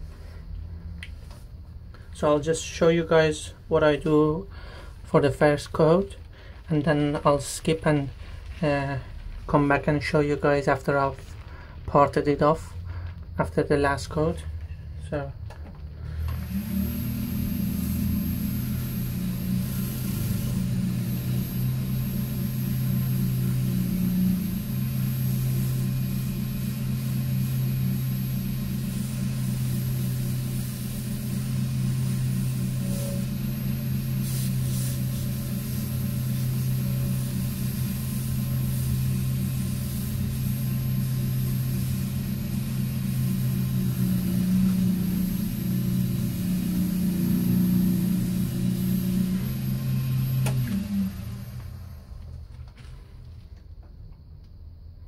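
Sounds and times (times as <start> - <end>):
wood lathe motor humming: 16.0 - 52.2.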